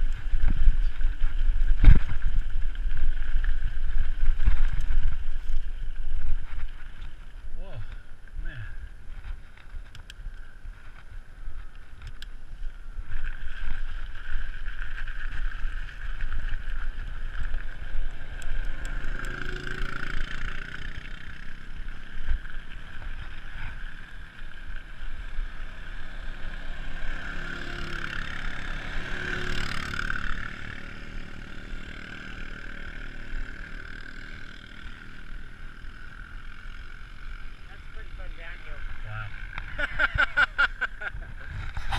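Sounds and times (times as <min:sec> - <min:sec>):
wind on microphone: 0:00.0 - 0:19.2, 0:39.7 - 0:41.9
tyres rolling on asphalt: 0:00.0 - 0:41.4.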